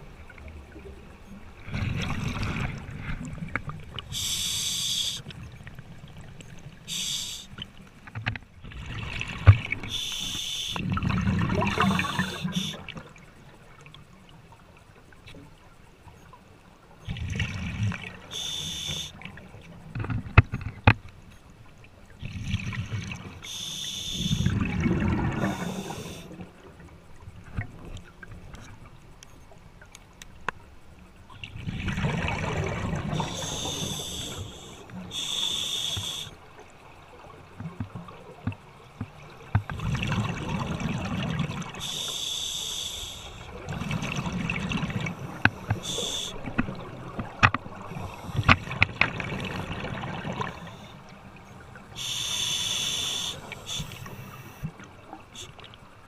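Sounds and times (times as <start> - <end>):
exhaled bubbles rumbling: 0.0 - 4.2, 8.6 - 10.0, 10.8 - 13.0, 17.0 - 18.3, 24.2 - 28.5, 31.3 - 34.0, 37.2 - 41.9, 43.5 - 50.8
regulator inhale hissing: 4.1 - 5.2, 6.9 - 7.6, 9.9 - 10.8, 11.9 - 12.8, 18.3 - 19.2, 23.4 - 24.5, 25.4 - 26.3, 33.2 - 36.4, 41.8 - 43.5, 45.2 - 46.5, 47.9 - 48.7, 52.0 - 54.7.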